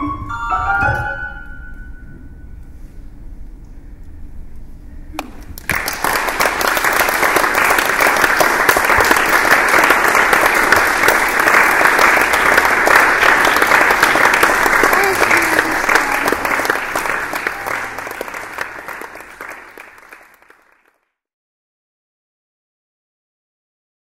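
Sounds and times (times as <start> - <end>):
audience applauding: 5.2 - 21.0.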